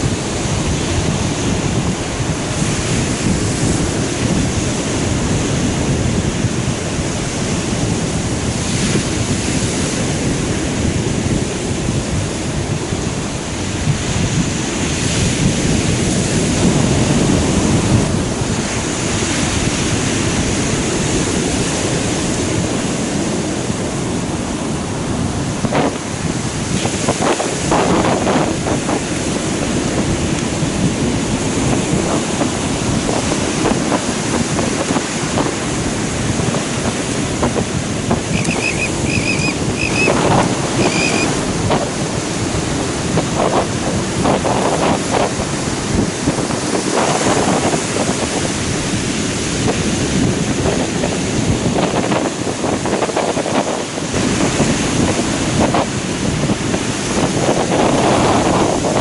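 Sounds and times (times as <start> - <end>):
ocean surf breaking: 0.0 - 59.0
wind buffeting microphone: 0.0 - 59.0.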